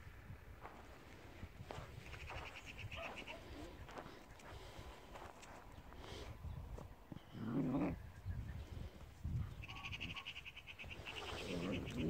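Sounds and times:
puppies growling: 7.1s - 8.0s, 11.2s - 12.0s.

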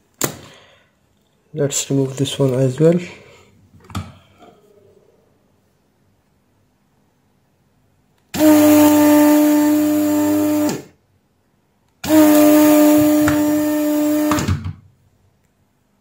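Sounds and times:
desoldering pump motor hum: 8.4s - 10.9s, 12.0s - 14.5s.

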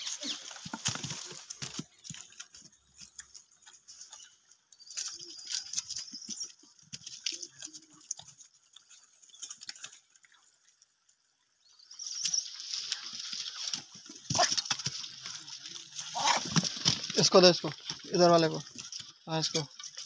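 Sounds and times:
quick clicks and rustles: 12.2s - 20.0s.

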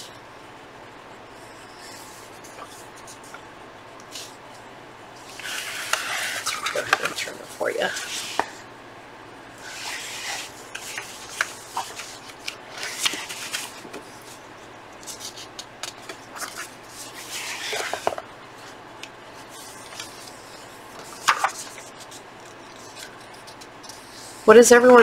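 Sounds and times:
magazine pages rustling: 5.3s - 8.6s, 9.6s - 24.1s.

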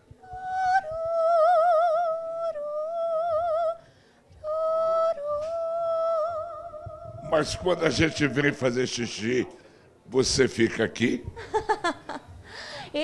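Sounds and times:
woman singing wordless high notes: 0.1s - 3.8s, 4.4s - 8.6s.

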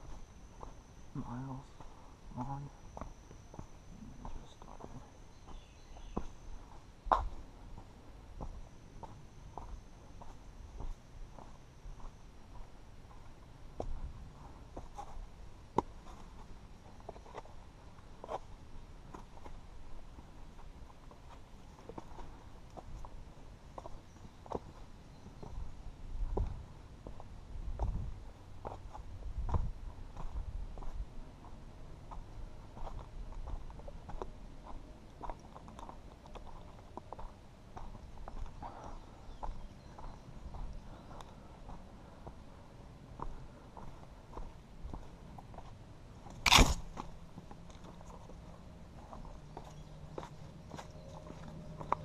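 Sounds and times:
footsteps on gritty dirt trail: 0.0s - 52.0s
footsteps on rock: 46.3s - 47.1s
sharp click: 46.4s - 46.9s.

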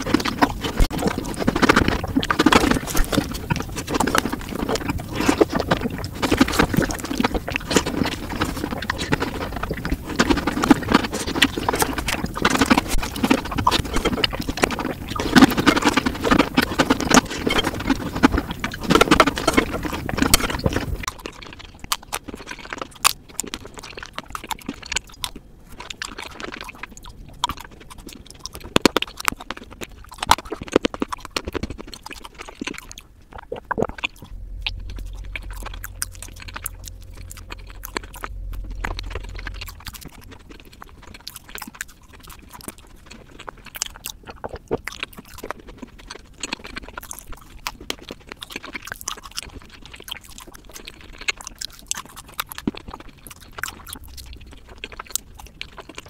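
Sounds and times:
low hum: 0.0s - 21.3s, 33.5s - 43.7s, 52.0s - 56.0s
mouth sounds and clicks: 0.0s - 56.0s
slurping and chewing: 0.0s - 56.0s.

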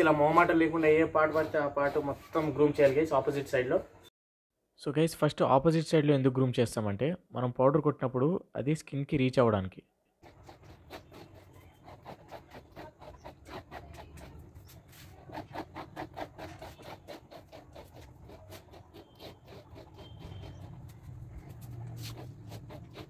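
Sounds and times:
comb rasping through dog coat: 0.0s - 3.4s, 10.2s - 23.0s.

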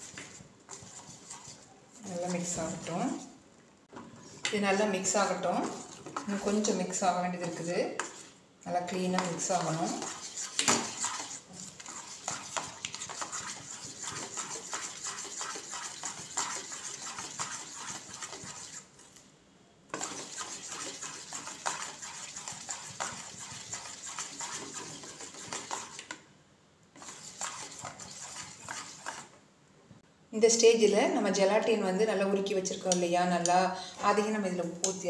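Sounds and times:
utensil scraping steel bowl: 0.0s - 3.3s, 4.2s - 18.9s, 19.9s - 26.1s, 27.0s - 29.3s.

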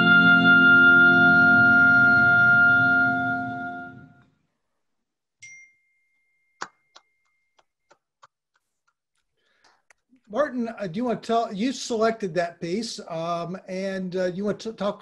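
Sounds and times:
oboe and piano chord: 0.0s - 4.2s.

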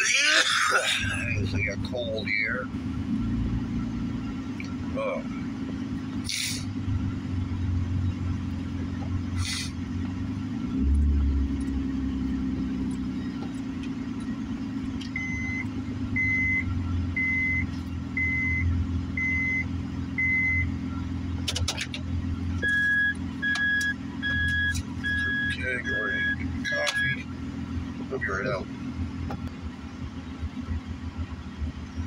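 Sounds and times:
car engine humming: 0.0s - 32.0s
high in-car chime beeping: 22.6s - 27.2s.

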